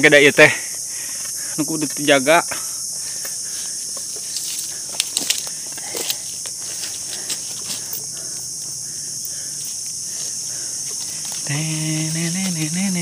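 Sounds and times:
insects chirring: 0.0s - 13.0s
light rustles and clicks: 3.2s - 8.0s.

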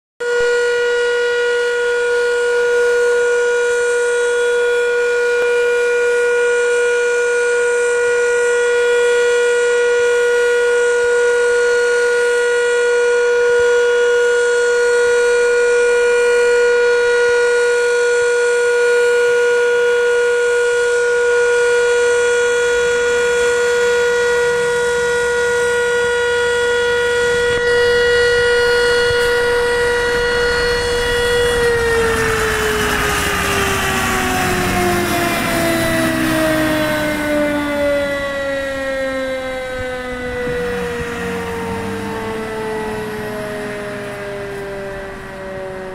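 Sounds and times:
fire engine diesel rumble: 0.2s - 45.9s
fire station alarm siren: 0.2s - 45.9s.

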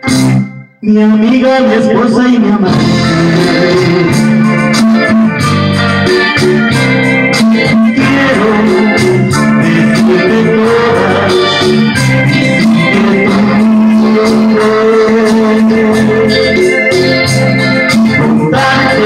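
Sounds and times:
electronic keyboard melody: 0.0s - 19.0s.

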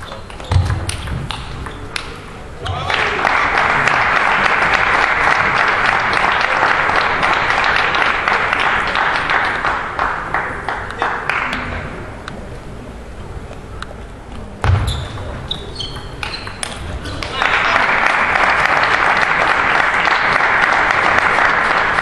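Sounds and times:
audience applauding: 2.7s - 11.5s, 17.1s - 22.0s
short high squeaks: 14.9s - 16.6s.

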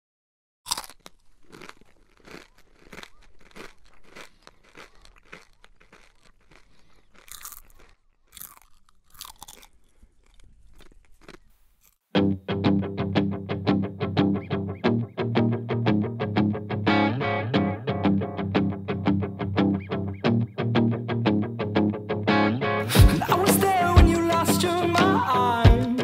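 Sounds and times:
popcorn being chewed: 0.7s - 12.1s
band with strummed guitar: 12.2s - 26.0s.

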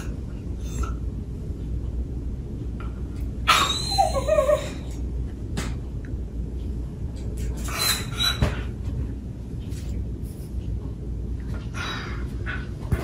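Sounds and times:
dog whining: 0.0s - 1.1s, 3.5s - 5.0s, 7.6s - 8.7s
steady low hum: 0.0s - 13.0s.

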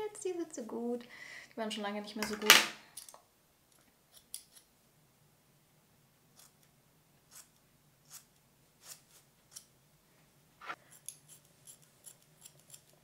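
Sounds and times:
scissors snipping hair: 10.9s - 13.0s.

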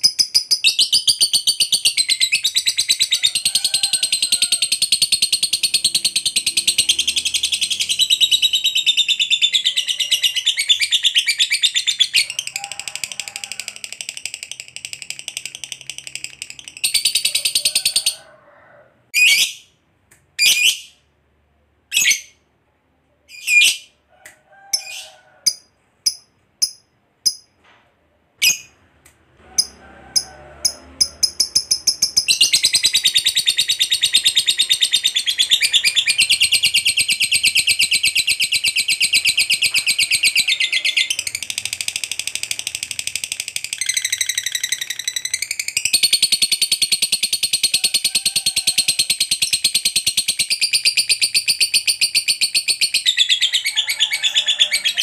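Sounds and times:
lovebird chattering trill: 29.6s - 47.7s.

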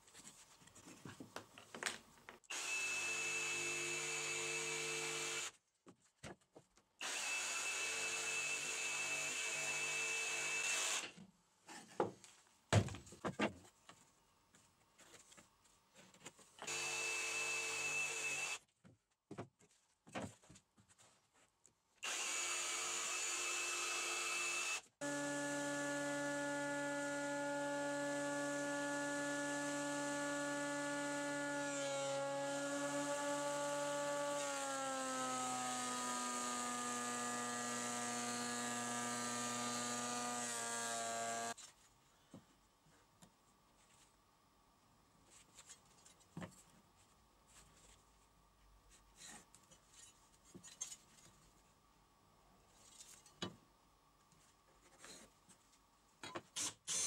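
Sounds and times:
jigsaw cutting wood: 2.5s - 5.5s, 7.0s - 11.2s, 16.6s - 18.6s, 22.0s - 41.6s.

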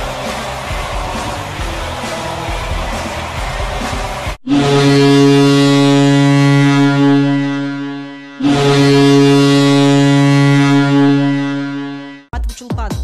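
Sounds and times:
deep air horn blasts: 4.4s - 12.3s.

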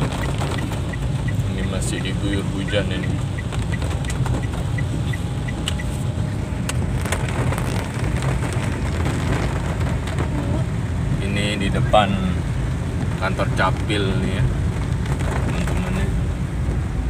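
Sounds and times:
sharp raindrop clicks: 0.0s - 1.5s, 2.2s - 5.9s
light regular ticking: 0.0s - 5.9s
car engine and tyres on wet road: 0.0s - 17.0s
heavy rain on car roof: 0.0s - 17.0s.

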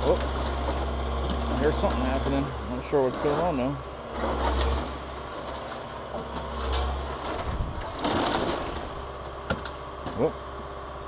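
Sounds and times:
crunching of structure: 0.0s - 10.5s
excavator engine running: 0.0s - 11.0s
wood cracking and knocking: 4.2s - 10.3s.

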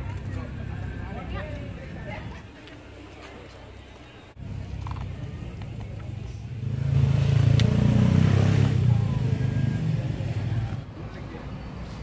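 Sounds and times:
vehicle engine passing by: 6.5s - 10.9s.

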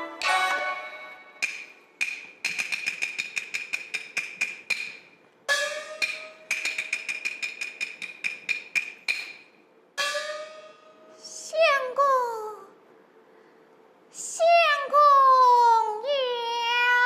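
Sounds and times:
wood-block strikes: 0.0s - 11.1s.

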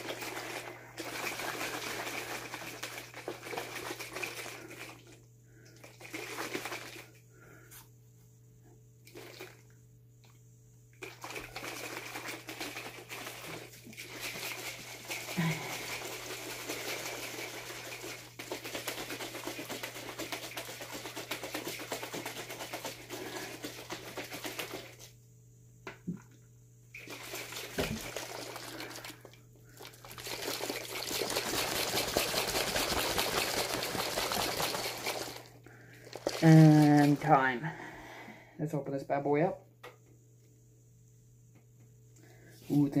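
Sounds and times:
drink sloshing in shaker cup: 0.0s - 7.8s, 9.1s - 9.7s, 11.0s - 25.1s, 27.0s - 37.6s.

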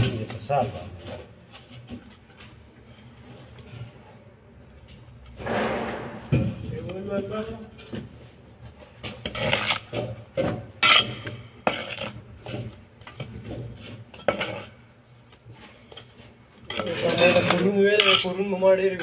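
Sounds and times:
trowel scraping mortar: 9.0s - 19.0s.

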